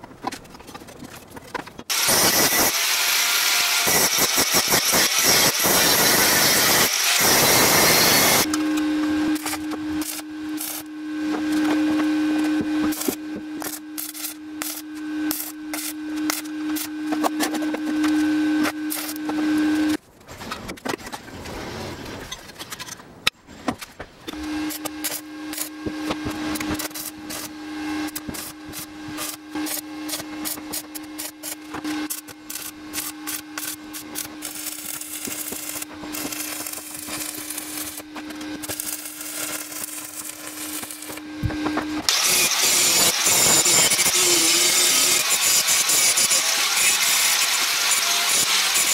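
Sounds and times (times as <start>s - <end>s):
welding arc crackling: 1.9s - 20.0s, 24.4s - 48.9s
steady hum: 7.8s - 20.0s, 23.2s - 42.1s.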